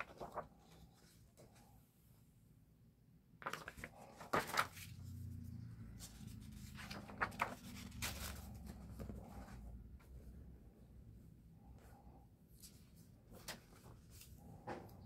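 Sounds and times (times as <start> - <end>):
book pages turning: 0.0 - 1.6, 3.4 - 10.1.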